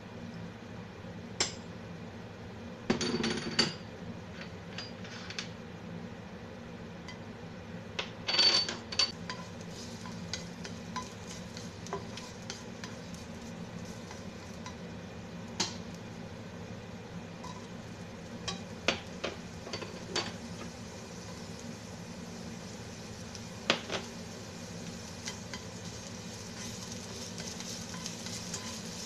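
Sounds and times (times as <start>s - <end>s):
low steady hum: 5.5s - 29.0s
spatula scraping a pan: 9.1s - 14.8s, 17.4s - 17.8s, 24.8s - 29.0s
garlic sizzling in hot oil: 9.1s - 29.0s.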